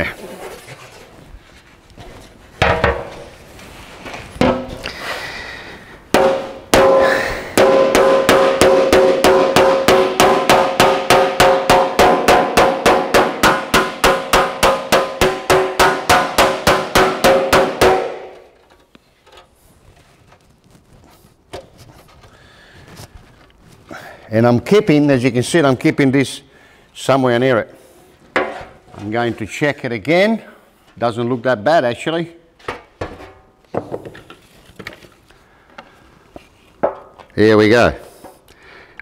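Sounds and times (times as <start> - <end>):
hammer striking sheet metal: 6.1 - 18.6.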